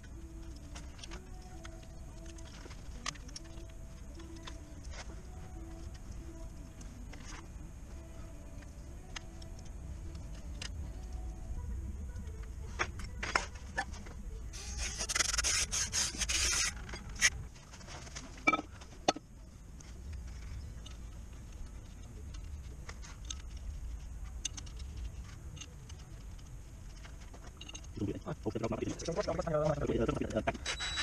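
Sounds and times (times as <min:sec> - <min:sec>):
tools and metal parts clinking: 0:24.3 - 0:28.0.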